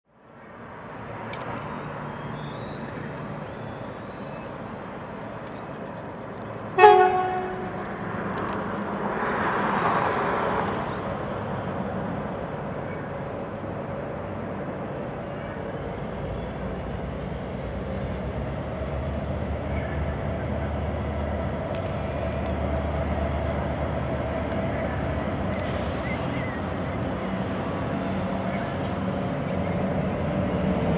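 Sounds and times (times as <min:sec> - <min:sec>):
locomotive engine rumble: 0:01.1 - 0:30.9
train horn blast: 0:06.8 - 0:07.9.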